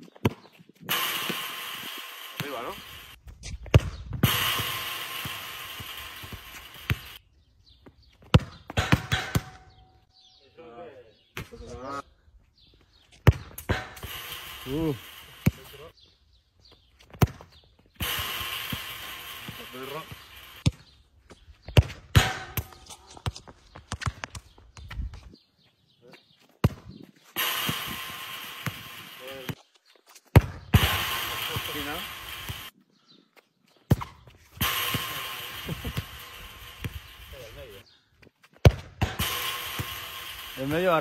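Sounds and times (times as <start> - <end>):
ball striking metal with ringing: 0.9 - 3.2, 4.2 - 7.2, 8.5 - 10.1, 13.4 - 15.9, 18.0 - 20.7, 22.1 - 23.0, 27.4 - 29.6, 30.7 - 32.7, 34.6 - 37.8, 39.0 - 41.0
steady hiss: 0.9 - 3.2, 4.3 - 7.2, 14.0 - 15.9, 18.0 - 20.6, 27.4 - 29.6, 30.8 - 32.7, 34.6 - 37.8, 39.2 - 41.0
football kicked on concrete: 3.4 - 4.4, 8.2 - 9.6, 13.2 - 13.9, 17.0 - 17.6, 21.7 - 25.3, 26.6 - 27.0, 30.3 - 30.7, 38.6 - 39.2
football thudding on concrete: 8.2 - 9.8, 17.1 - 17.5, 38.6 - 39.2
footsteps on concrete: 22.6 - 27.4.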